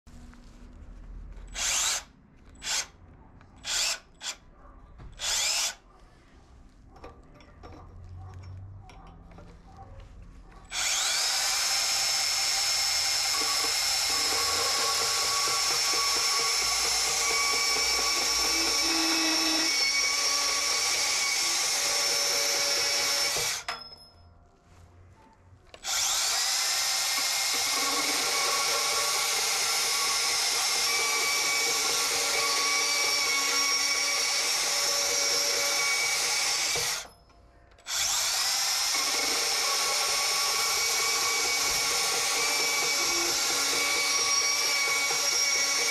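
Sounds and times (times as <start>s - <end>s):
band saw motor cutting metal: 10.7s - 23.7s, 37.9s - 45.9s.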